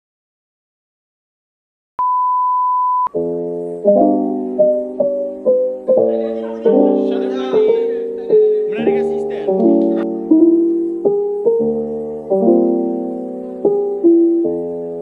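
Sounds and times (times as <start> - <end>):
piano music with soft chords: 3.1 - 15.0.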